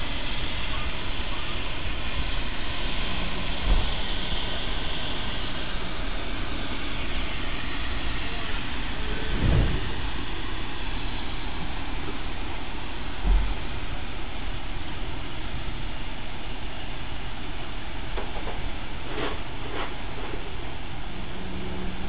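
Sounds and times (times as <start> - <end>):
steam locomotive hissing: 0.0 - 22.0
brief low rumble: 9.0 - 10.8
low thump: 9.3 - 10.0, 13.2 - 13.6.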